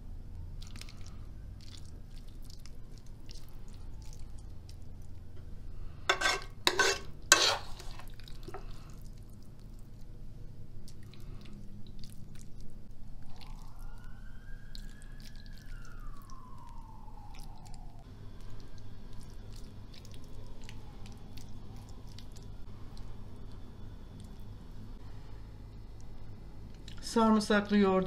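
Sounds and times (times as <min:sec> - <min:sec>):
food squishing: 0:00.5 - 0:05.5, 0:06.1 - 0:24.7
cutlery scraping pan and plate: 0:06.1 - 0:08.1
siren wailing: 0:13.0 - 0:19.4.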